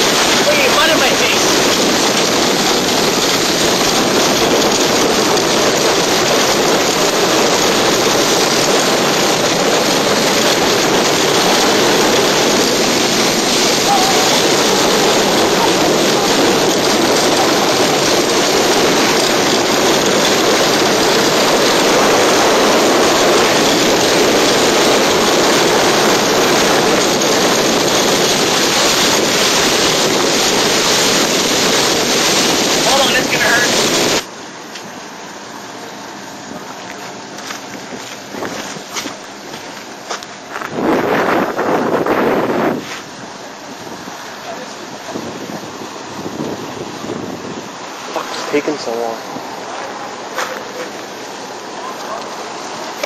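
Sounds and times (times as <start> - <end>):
refrigerator dragged over ground: 36.4 - 53.0.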